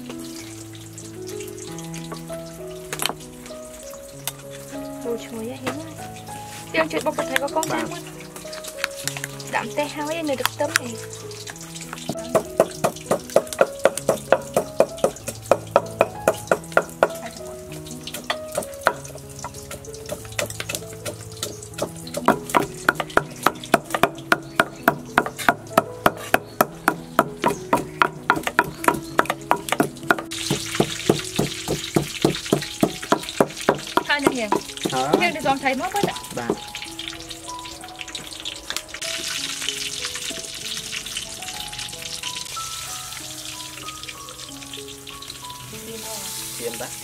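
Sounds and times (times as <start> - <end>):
soft background music: 0.0 - 47.0
knife chopping on wooden board: 12.1 - 17.2, 18.2 - 35.4.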